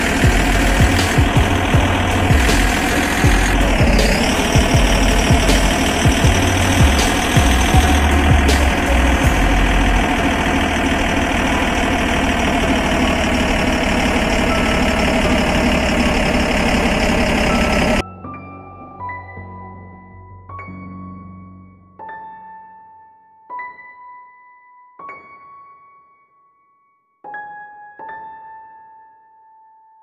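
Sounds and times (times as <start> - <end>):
engine-like drone: 0.0 - 18.0.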